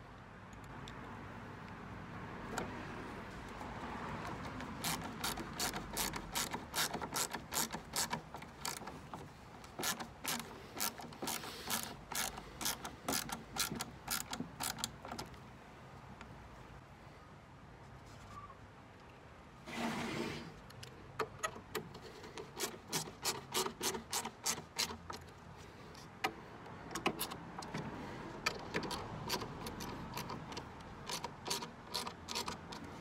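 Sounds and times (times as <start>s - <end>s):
ratcheting screwdriver clicking: 4.2s - 15.4s, 20.7s - 25.4s, 26.2s - 27.8s, 28.4s - 32.9s.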